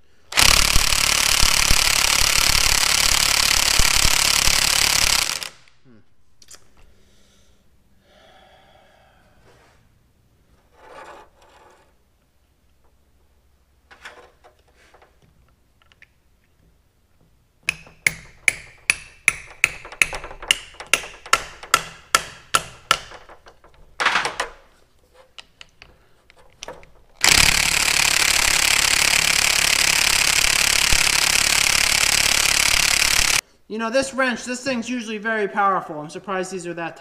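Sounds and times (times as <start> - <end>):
impact wrench hammering: 0.3 - 5.6, 17.2 - 24.6, 26.6 - 33.4
sharp metallic knocks: 17.6 - 23.9.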